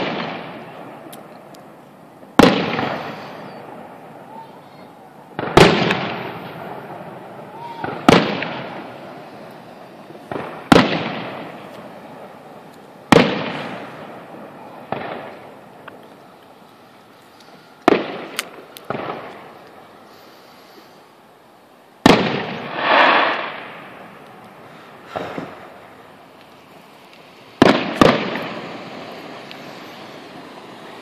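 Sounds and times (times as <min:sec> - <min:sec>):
fireworks bangs with echo: 0:00.0 - 0:01.3, 0:02.2 - 0:15.9, 0:17.8 - 0:19.6, 0:22.0 - 0:24.2, 0:25.0 - 0:25.9, 0:27.5 - 0:31.0
small fireworks pops: 0:00.0 - 0:21.0, 0:22.0 - 0:31.0
rush of noise: 0:22.4 - 0:31.0.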